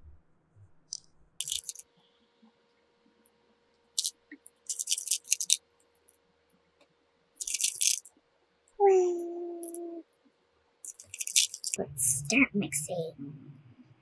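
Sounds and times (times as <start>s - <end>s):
hard candies rattling in plastic bowl: 1.4s - 1.8s, 4.0s - 5.6s, 7.4s - 8.1s, 10.9s - 11.8s.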